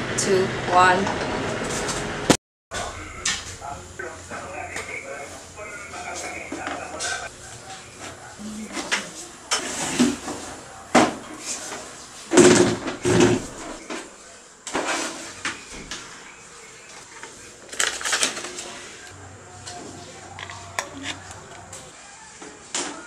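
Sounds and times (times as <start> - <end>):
equipment and cables clattering: 17.0 - 21.9.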